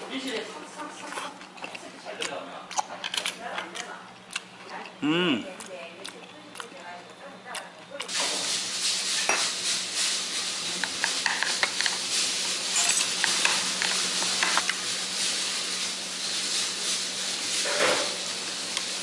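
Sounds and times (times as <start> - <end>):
steady hiss: 8.1 - 19.0.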